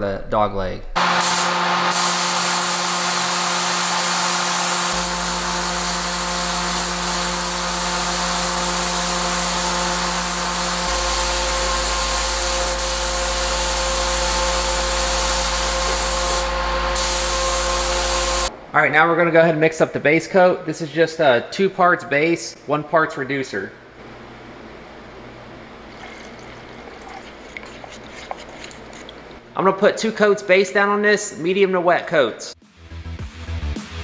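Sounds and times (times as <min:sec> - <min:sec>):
spray gun hissing: 0:01.0 - 0:18.5
machine hum: 0:01.0 - 0:18.7.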